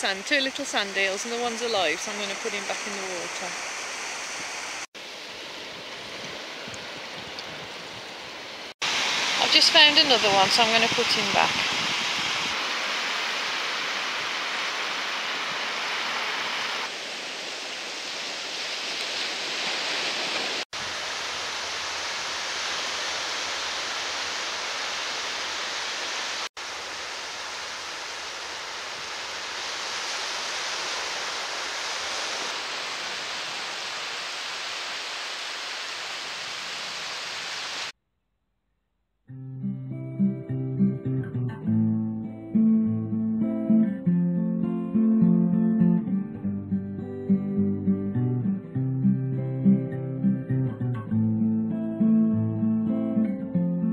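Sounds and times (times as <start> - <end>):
surf washing on sandy beach: 0.1 - 37.9.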